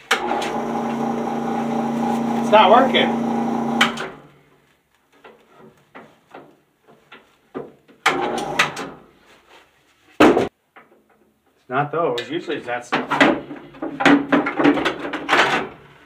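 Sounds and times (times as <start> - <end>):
bandsaw motor humming: 0.1 - 4.2.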